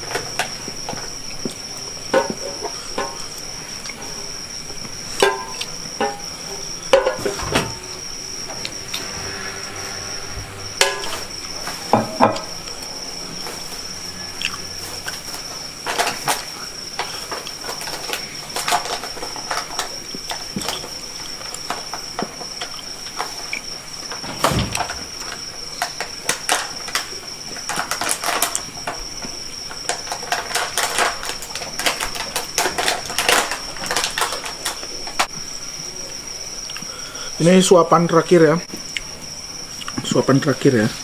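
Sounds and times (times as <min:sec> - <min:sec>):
insect trill: 0:00.0 - 0:41.0
heavy thud: 0:24.2 - 0:25.2.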